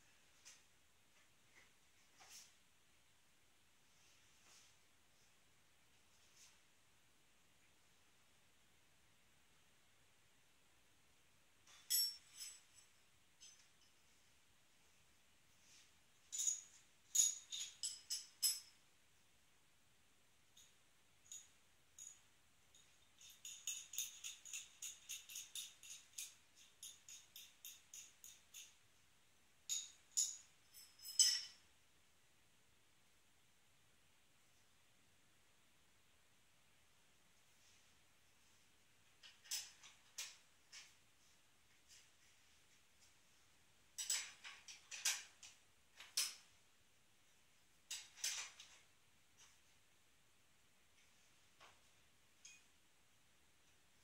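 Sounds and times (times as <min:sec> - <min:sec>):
metal tools clinking: 0:11.7 - 0:14.0, 0:16.3 - 0:18.8, 0:21.3 - 0:28.8, 0:29.7 - 0:31.7, 0:44.0 - 0:46.4.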